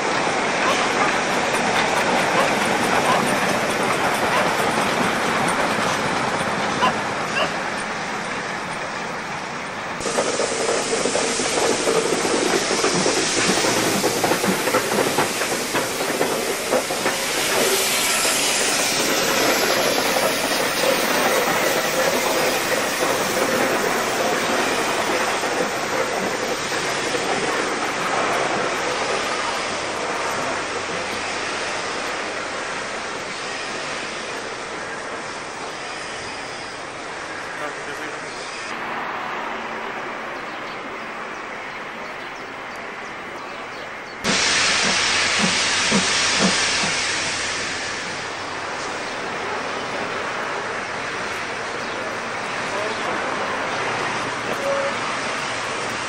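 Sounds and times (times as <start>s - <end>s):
hissing steam: 0.0s - 40.4s, 42.5s - 56.0s
wheels clattering on rails: 0.6s - 7.6s, 10.0s - 31.2s.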